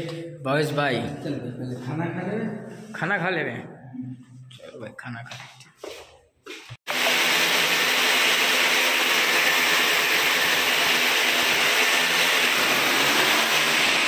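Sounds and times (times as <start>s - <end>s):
power drill boring into ceiling: 6.9s - 14.0s.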